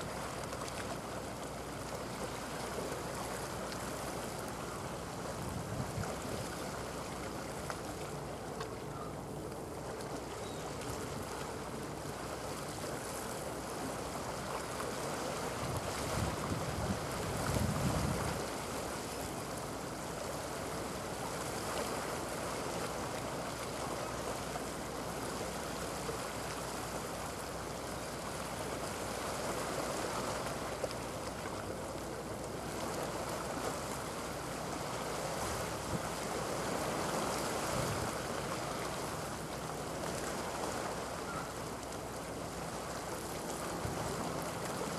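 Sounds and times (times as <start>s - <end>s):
sea water washing on shore: 0.0s - 44.9s
wind noise on microphone: 5.4s - 6.2s, 15.6s - 18.5s, 37.6s - 38.2s.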